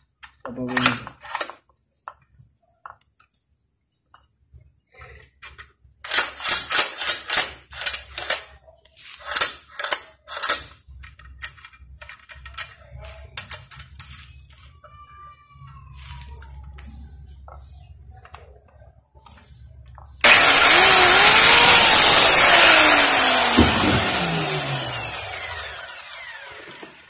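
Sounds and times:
saw parts clicking and rattling: 0.2 - 1.7, 5.4 - 14.7, 20.2 - 27.0.

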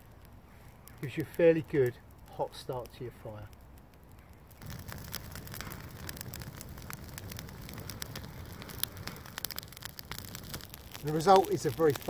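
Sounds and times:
twigs crackling and popping: 0.0 - 12.0
rush of flame: 4.4 - 12.0.

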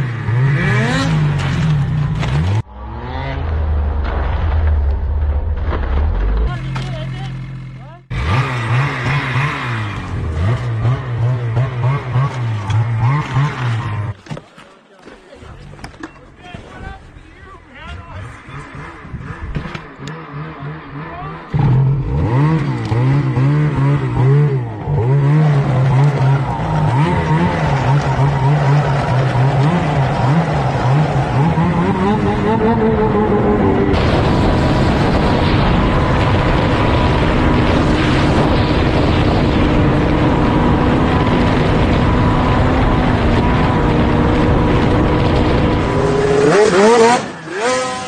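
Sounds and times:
snowmobile engine revving: 0.0 - 3.8, 6.3 - 14.2, 17.3 - 48.0
rushing noise: 24.1 - 48.0.

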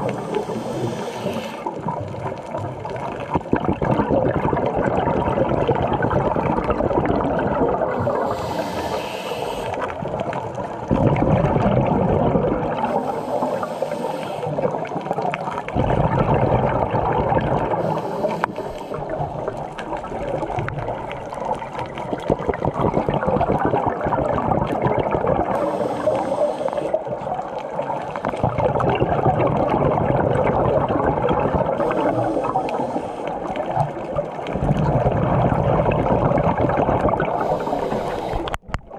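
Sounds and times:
regulator hissing inhale: 0.0 - 1.7, 8.0 - 9.9, 12.8 - 14.7, 17.8 - 19.2, 25.6 - 27.1, 31.8 - 33.7, 37.4 - 38.6
gurgle of exhaled bubbles: 0.0 - 38.9.

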